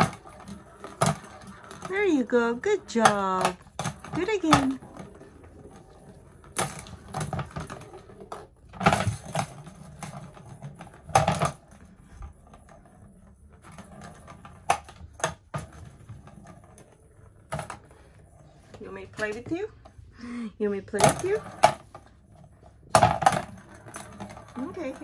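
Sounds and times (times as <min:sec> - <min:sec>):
plastic ball toy clacking: 0:00.0 - 0:12.7, 0:22.8 - 0:25.0.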